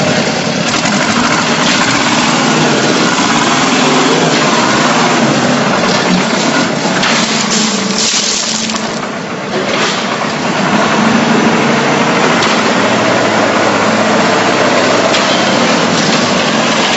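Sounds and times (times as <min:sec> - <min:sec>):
machinery engine running: 0:00.0 - 0:16.9.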